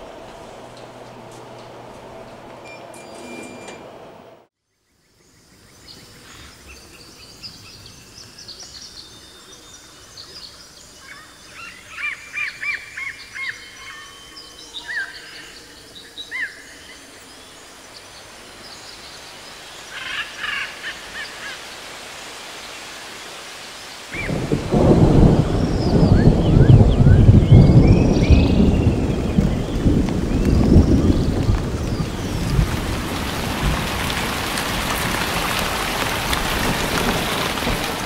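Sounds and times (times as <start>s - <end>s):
soft steady hiss: 5.2s - 26.1s.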